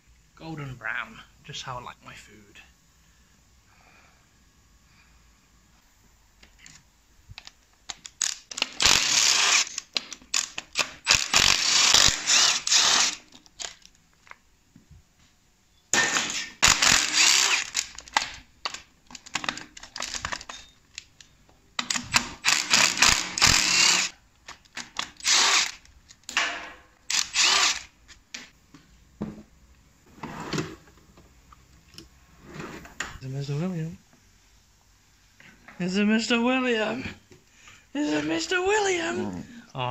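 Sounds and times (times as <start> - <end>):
air impact wrench hammering: 8.6 - 9.8, 10.4 - 13.2, 16.0 - 17.9, 21.8 - 24.1.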